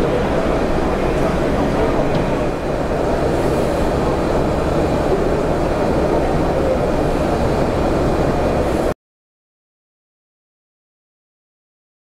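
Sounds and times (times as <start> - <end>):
printer mechanical rumble: 0.0 - 9.0.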